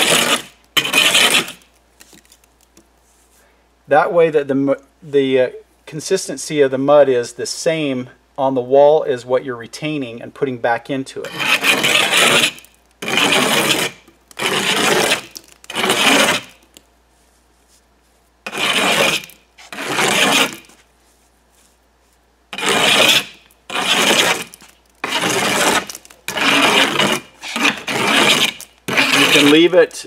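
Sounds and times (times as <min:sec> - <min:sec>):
trowel scraping mortar: 0:00.0 - 0:02.4, 0:11.2 - 0:16.8, 0:18.4 - 0:20.9, 0:22.5 - 0:30.0.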